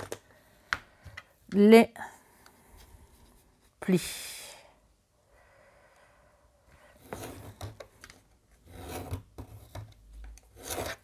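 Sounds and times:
tool scraping along paper: 10.5s - 11.0s.

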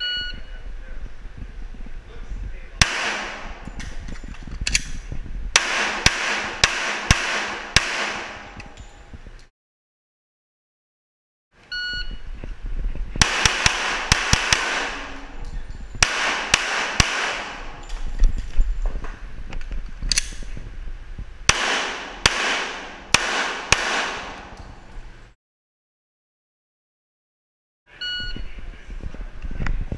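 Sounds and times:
pistol shots echoing indoors: 2.8s - 4.0s, 5.6s - 8.7s, 13.2s - 18.1s, 21.5s - 24.8s.

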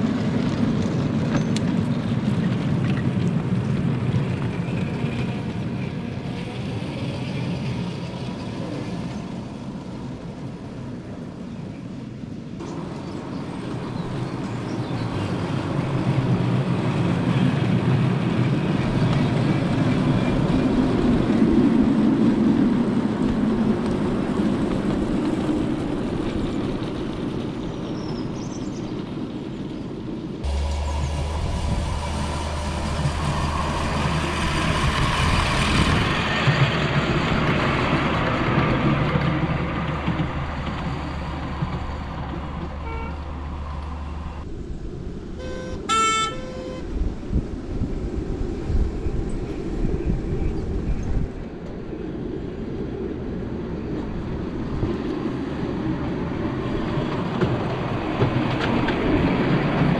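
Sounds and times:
miniature train rumbling on track: 0.0s - 59.9s
steady low hum: 30.4s - 35.9s
rising and falling whine: 30.4s - 36.5s.

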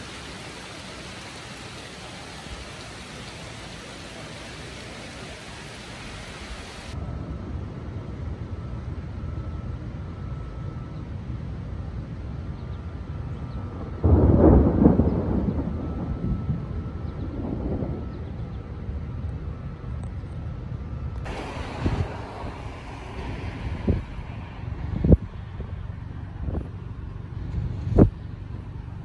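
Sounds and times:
steady rain: 0.0s - 29.0s
thunder rumbling: 0.0s - 29.0s
loud thunder clap: 14.0s - 18.0s.

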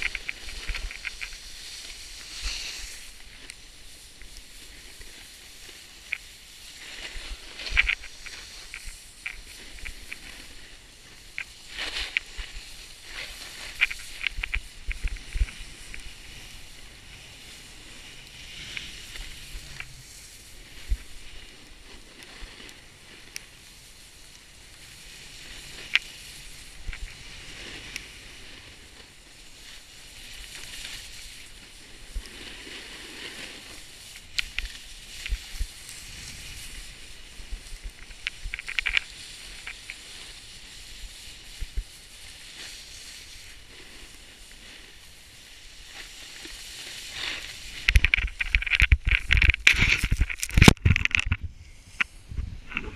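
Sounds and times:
wind on microphone: 0.0s - 4.9s, 47.4s - 52.9s
snowboard scraping on snow: 0.0s - 50.7s.

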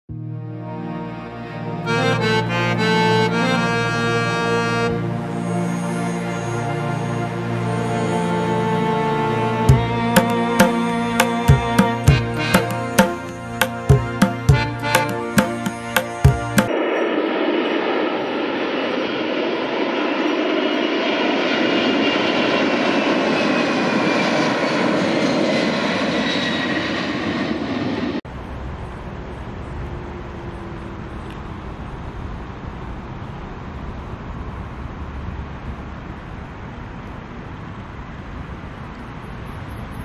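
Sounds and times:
jet engines roaring at takeoff: 16.7s - 33.7s.

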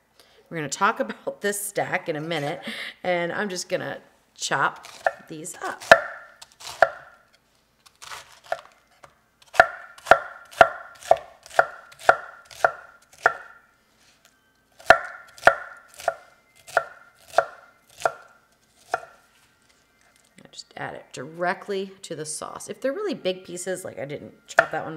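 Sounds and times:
knife chopping cabbage on board: 4.8s - 7.2s, 7.9s - 8.7s, 9.4s - 13.5s, 14.8s - 19.2s.

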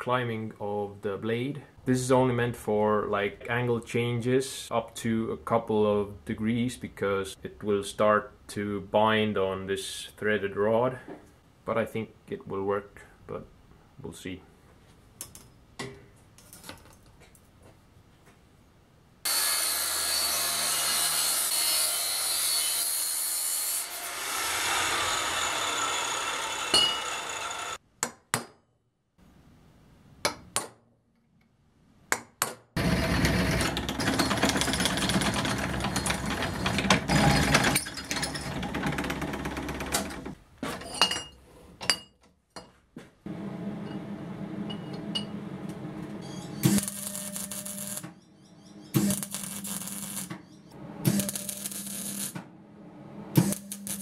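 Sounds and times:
power tool grinding steel: 19.3s - 27.8s.

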